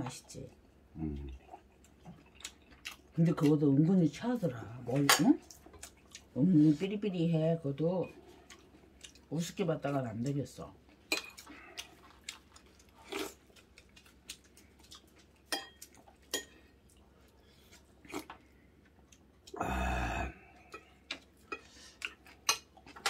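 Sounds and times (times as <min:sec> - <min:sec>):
chewing: 0:00.5 - 0:03.6, 0:05.4 - 0:06.4, 0:08.2 - 0:19.6, 0:20.4 - 0:23.0.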